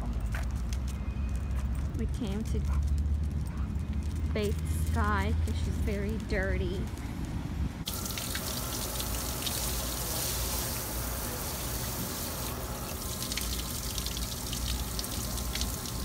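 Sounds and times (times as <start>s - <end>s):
water splashing and dripping: 7.8s - 16.0s
water running: 7.9s - 16.0s.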